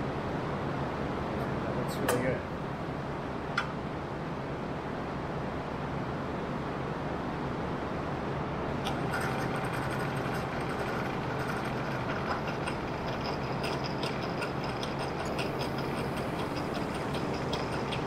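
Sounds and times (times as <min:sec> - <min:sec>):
steady low hum: 0:00.0 - 0:18.0
metal bracket ticking and clicking: 0:08.9 - 0:18.0.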